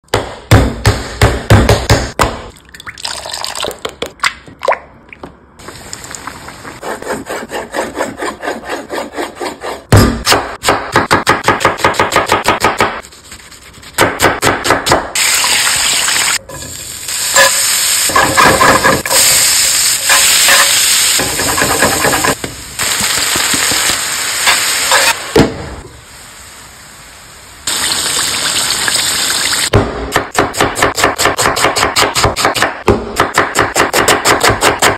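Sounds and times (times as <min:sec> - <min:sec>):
chicken frying in hot oil: 0:27.6 - 0:29.7.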